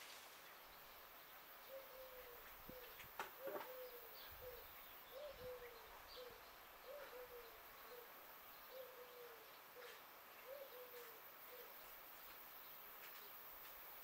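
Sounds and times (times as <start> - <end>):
dove cooing: 1.7 - 11.8.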